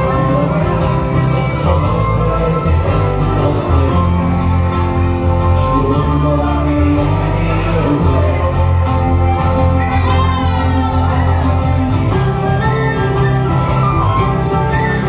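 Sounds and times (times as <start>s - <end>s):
bass guitar: 0.0s - 15.0s
strummed acoustic guitars: 0.0s - 15.0s
tin whistle: 12.2s - 15.0s.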